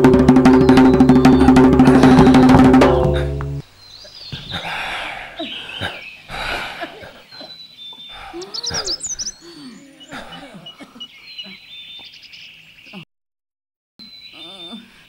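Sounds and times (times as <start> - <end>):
drum-led music: 0.0 - 3.6
sharp knocks: 0.0 - 3.6
birds chirping and whistling: 0.2 - 13.0, 14.0 - 14.8.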